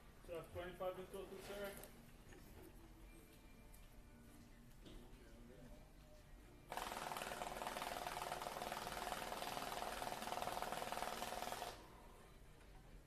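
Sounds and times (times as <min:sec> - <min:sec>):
banknote counting machine whirring: 0:06.7 - 0:11.9.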